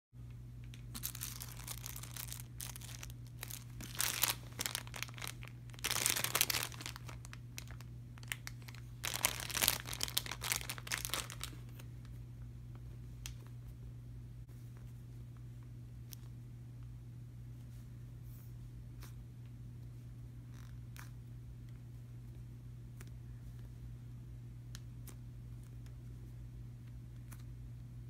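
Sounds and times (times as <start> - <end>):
steady low hum: 0.2 - 28.0
plastic package crinkling: 0.6 - 11.9.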